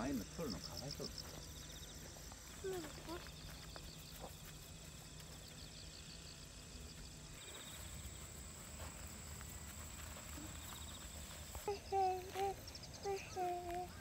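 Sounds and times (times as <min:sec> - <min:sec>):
insects chirping in grass: 0:00.0 - 0:14.0.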